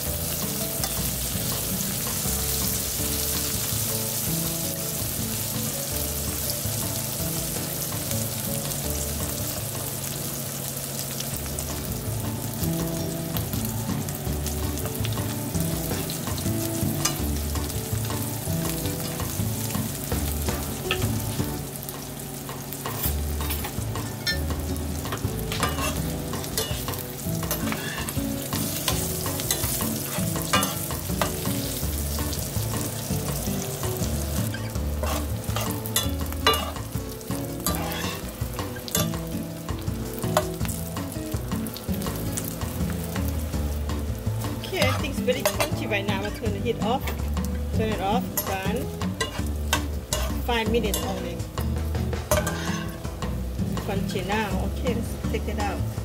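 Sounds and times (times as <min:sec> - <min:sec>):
insects sizzling in oil: 0:00.0 - 0:56.0
utensils scraping a pan: 0:22.5 - 0:33.6, 0:34.4 - 0:36.9, 0:37.6 - 0:39.2, 0:48.4 - 0:51.4, 0:52.2 - 0:53.3.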